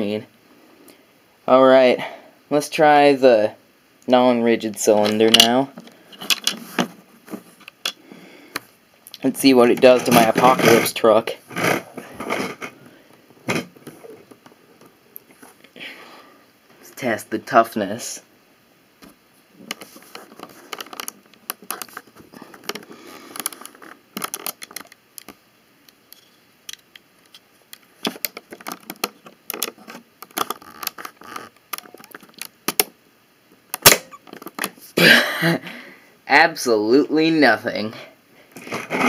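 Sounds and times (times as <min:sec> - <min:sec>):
plastic pieces clicking and rattling: 0:05.0 - 0:06.6, 0:19.6 - 0:25.4, 0:26.2 - 0:32.9
sharp snap: 0:33.8 - 0:34.2.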